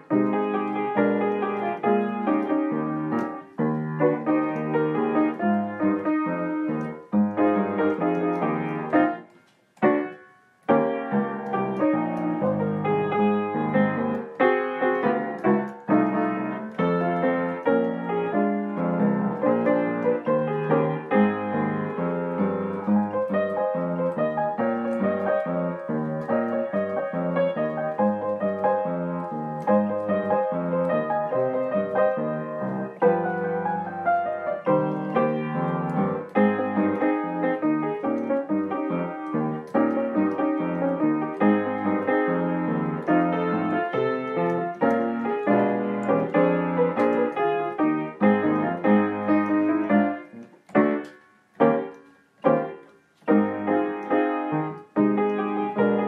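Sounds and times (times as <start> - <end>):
solo piano music: 0.0 - 56.0.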